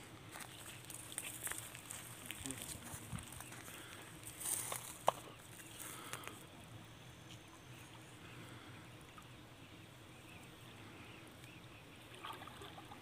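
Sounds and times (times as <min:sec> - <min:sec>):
pond water sloshing: 0:11.6 - 0:13.0
soft splashes: 0:12.1 - 0:13.0.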